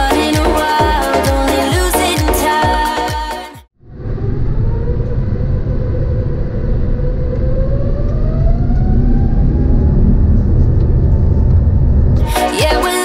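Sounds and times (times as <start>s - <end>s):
jet engines spooling up: 3.8s - 13.0s.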